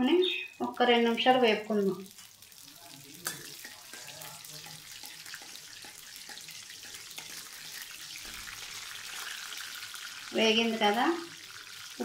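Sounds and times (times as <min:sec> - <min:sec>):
seeds sizzling in hot oil: 0:00.0 - 0:12.0
ladle stirring and knocking pan: 0:02.1 - 0:09.7.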